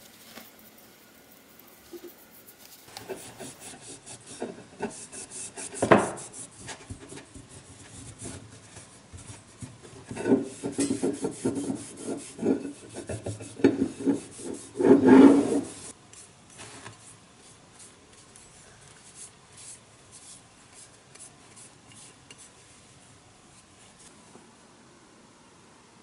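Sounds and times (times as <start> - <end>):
rubbing strokes on metal: 0.0 - 8.4, 9.2 - 15.9.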